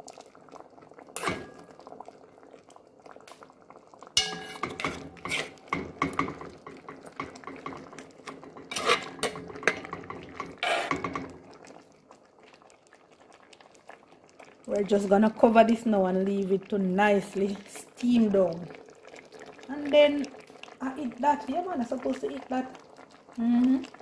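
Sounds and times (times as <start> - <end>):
metal spoon clinking on pot: 4.2 - 7.8.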